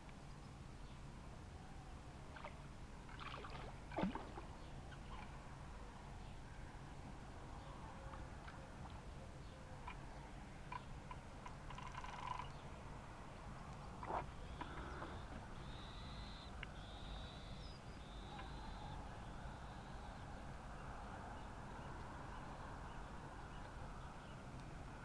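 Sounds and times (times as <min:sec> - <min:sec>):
bird calling flat high note: 0:14.4 - 0:20.2.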